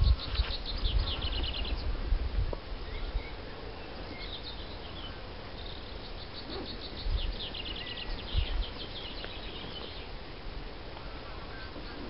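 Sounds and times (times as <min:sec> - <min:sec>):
wind thumps on microphone: 0:00.0 - 0:03.2, 0:06.4 - 0:12.0.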